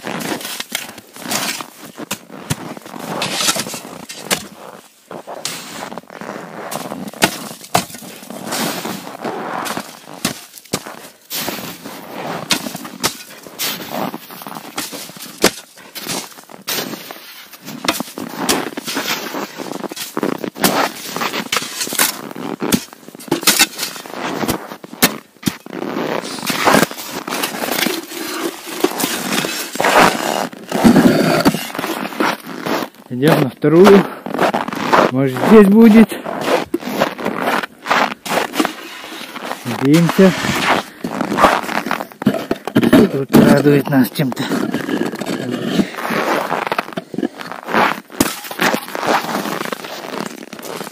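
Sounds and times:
shovel scraping snow and ice: 0.0s - 50.9s
shovel knocking on ice: 0.2s - 4.6s, 6.7s - 8.9s, 12.4s - 13.9s, 14.6s - 17.0s, 17.8s - 25.6s, 26.2s - 32.4s, 47.8s - 49.5s.

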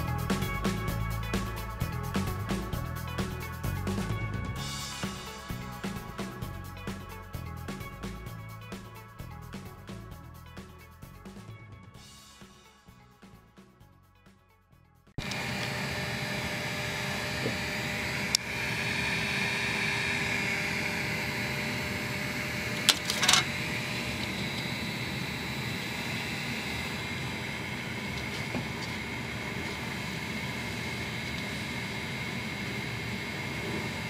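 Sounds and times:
small fan whirring: 15.2s - 34.0s.

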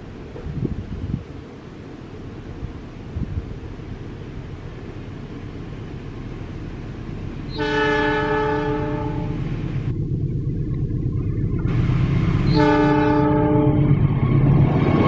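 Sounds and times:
train rumbling: 0.0s - 15.0s
locomotive horn blasts: 7.5s - 9.5s, 12.4s - 14.0s.

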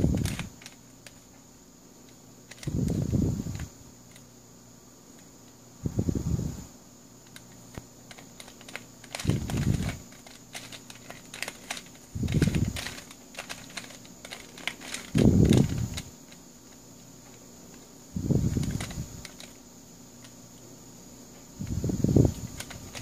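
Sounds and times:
plastic puzzle pieces clicking: 2.0s - 2.7s, 7.2s - 16.4s, 18.6s - 19.6s, 22.4s - 23.0s.

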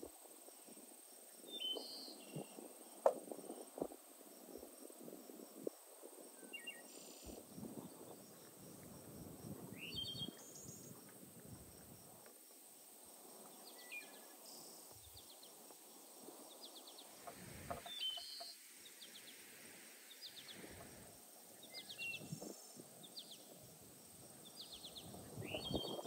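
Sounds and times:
faint bird chirps: 0.6s - 3.9s, 6.3s - 8.6s, 9.7s - 11.1s, 13.4s - 23.6s, 24.4s - 26.0s.

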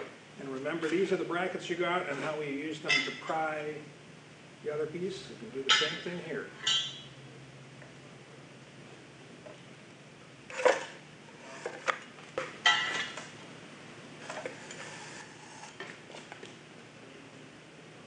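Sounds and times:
metal bars clanking on concrete: 5.7s - 6.0s.

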